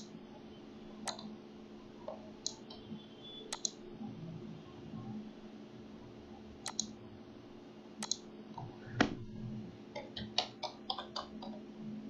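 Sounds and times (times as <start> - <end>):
faint steady hum: 0.0 - 12.0
computer mouse clicks: 1.0 - 1.3, 3.5 - 3.8, 6.6 - 7.0, 8.0 - 8.2
keyboard keystrokes: 3.5 - 3.8, 6.6 - 6.9, 8.0 - 8.2.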